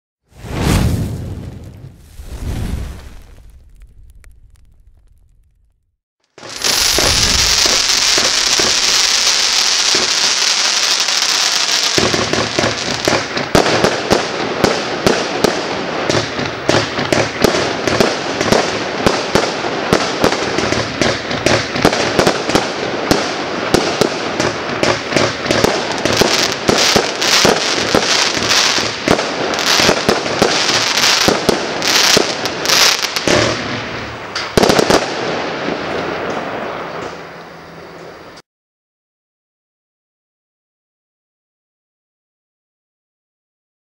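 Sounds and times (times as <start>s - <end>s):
fireworks hissing: 0.4s - 5.5s, 6.4s - 13.3s
fireworks shots and bursts: 6.3s - 37.0s
loud firework bang: 6.4s - 9.3s.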